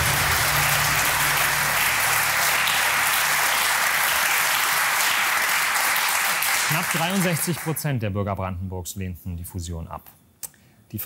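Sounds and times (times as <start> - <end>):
low held tone: 0.0 - 3.3
studio audience applauding: 0.0 - 8.0.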